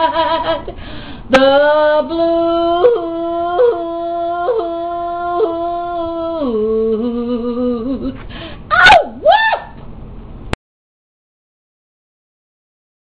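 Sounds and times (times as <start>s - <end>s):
woman singing unaccompanied: 1.3s - 8.2s.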